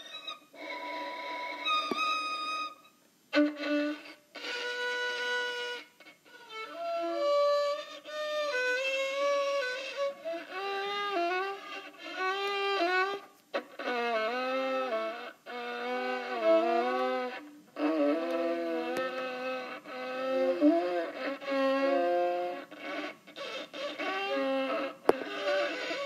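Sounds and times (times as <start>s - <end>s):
solo viola bowed notes: 0.0s - 26.0s
viola sliding notes: 0.0s - 26.0s.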